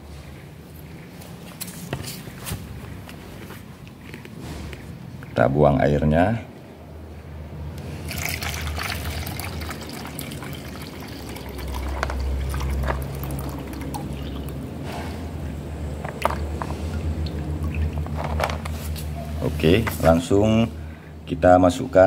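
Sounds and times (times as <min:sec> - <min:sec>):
water trickling and splashing: 0:08.0 - 0:14.8, 0:16.2 - 0:18.4.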